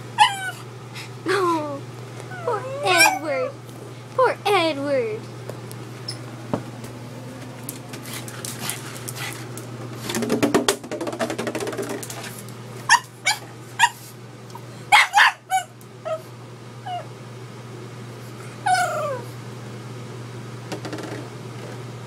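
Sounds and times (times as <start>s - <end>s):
dog yipping: 0.2s - 0.6s, 2.3s - 3.5s, 12.9s - 14.0s, 14.9s - 17.1s, 18.6s - 19.3s
dog whining: 0.2s - 0.7s, 1.3s - 3.6s, 12.9s - 17.1s, 18.4s - 19.4s.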